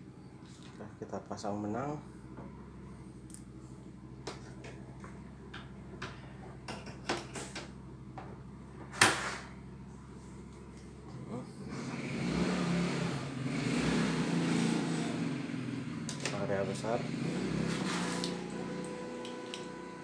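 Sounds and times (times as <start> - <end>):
embroidery machine running: 17.0 - 20.0.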